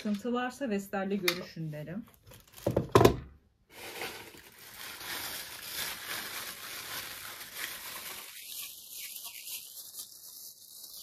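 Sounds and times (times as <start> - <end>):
plastic wrapping crinkling: 2.1 - 3.0, 3.7 - 11.0.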